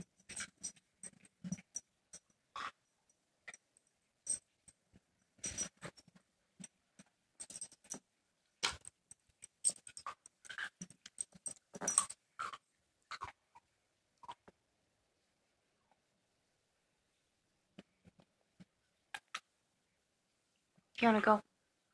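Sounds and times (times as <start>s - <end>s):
metallic jingling: 5.4s - 6.0s, 11.1s - 12.2s.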